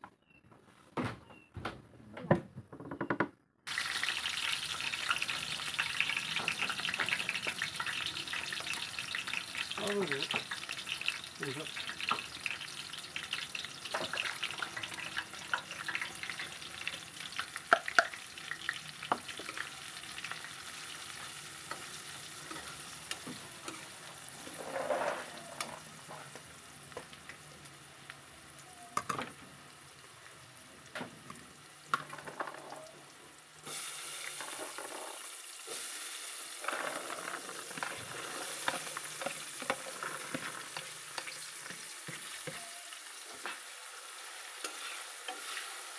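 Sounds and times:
vegetables sizzling in hot oil: 3.7s - 45.9s
metal spatula scraping wok: 20.3s - 26.3s, 36.6s - 42.6s, 44.6s - 45.9s.

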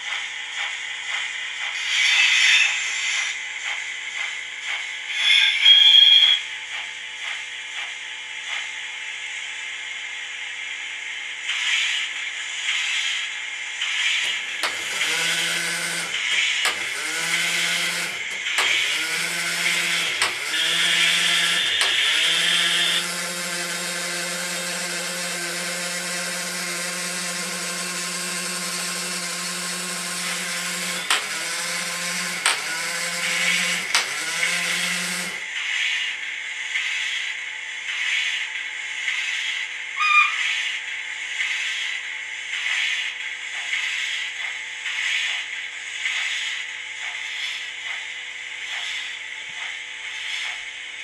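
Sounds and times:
small electric motor whining: 14.3s - 35.4s.

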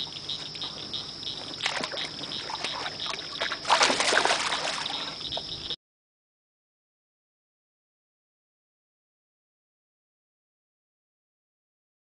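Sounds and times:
insects chirping: 0.0s - 5.8s
water splashing: 1.4s - 5.5s.

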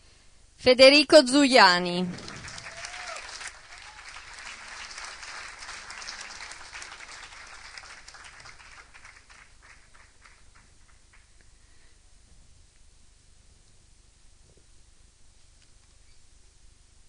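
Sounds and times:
audience applauding: 2.0s - 11.4s.

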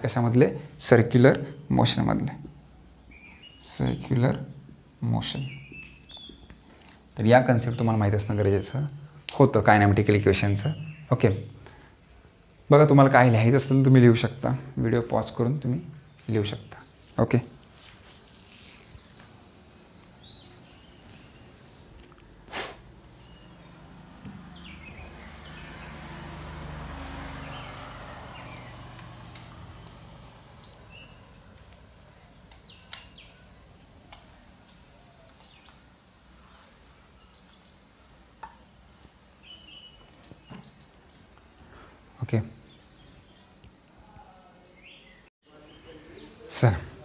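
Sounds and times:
insects chirring: 0.0s - 47.0s
duster rubbing a whiteboard: 22.5s - 22.9s.

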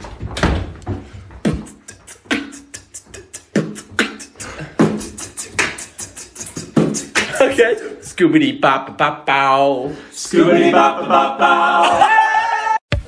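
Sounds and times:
person beatboxing: 1.4s - 8.2s.

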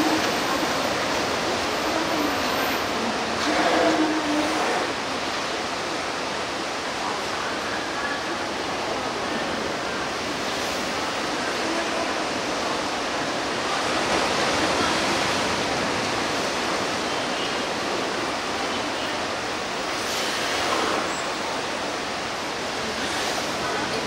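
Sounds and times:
water rushing in a pool: 0.0s - 24.0s.

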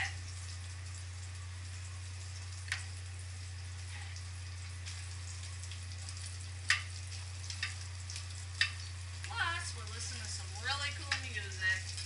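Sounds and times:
frying sizzle with crackles: 0.0s - 12.0s
utensil clacking against pan: 11.0s - 12.0s.

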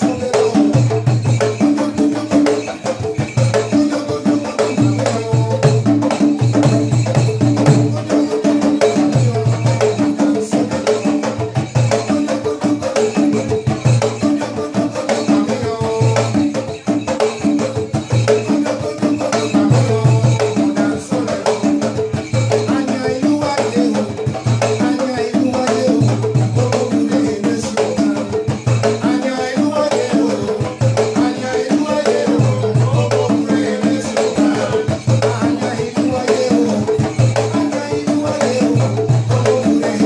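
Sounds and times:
bells jingling: 0.0s - 40.0s
drums in interlocking rhythm: 0.0s - 40.0s.

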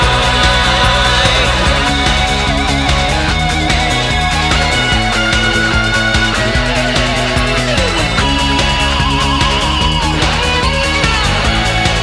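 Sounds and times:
lead line long high note: 0.0s - 11.8s
pop-rock band instrumental: 0.0s - 12.0s.

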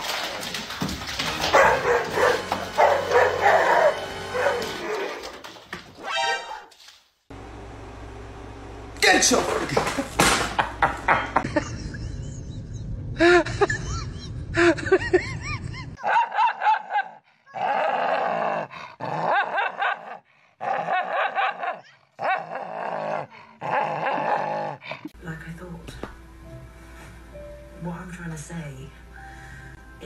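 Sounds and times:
dog barking and growling: 1.2s - 5.4s, 16.0s - 25.0s.

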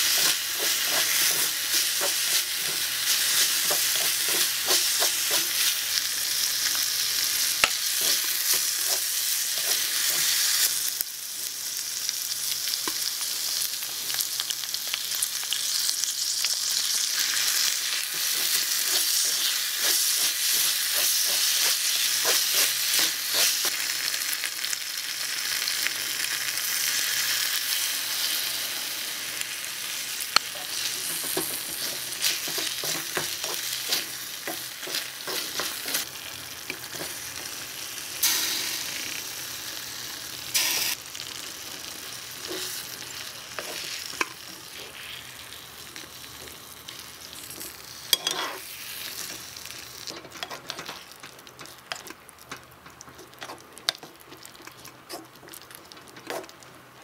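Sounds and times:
mushrooms sizzling in a wok: 0.0s - 57.0s
wooden spatula scraping a pan: 8.0s - 10.3s, 48.2s - 48.6s.

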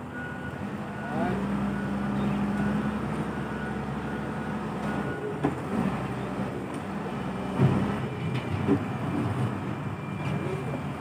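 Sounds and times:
reversing alarm beeping: 0.0s - 5.4s, 9.7s - 11.0s
diesel engine revving: 0.0s - 8.1s.

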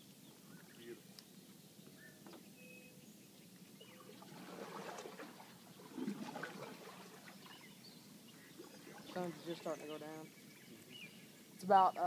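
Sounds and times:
water splashing and trickling: 3.7s - 10.8s.

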